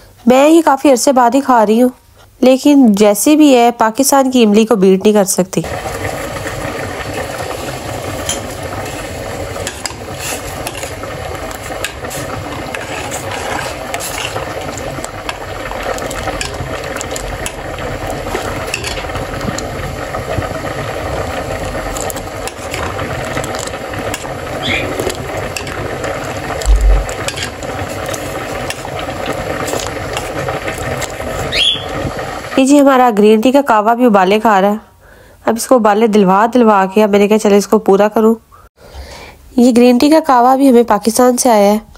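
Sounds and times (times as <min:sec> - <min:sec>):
tea boiling in a pan: 0:04.0 - 0:34.5.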